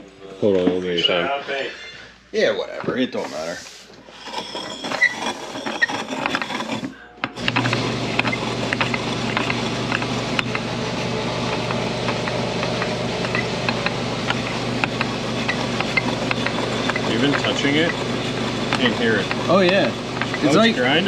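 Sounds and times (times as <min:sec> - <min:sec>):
grinder motor humming: 0:04.2 - 0:21.0
knocks and clicks: 0:06.1 - 0:10.7, 0:11.4 - 0:20.4.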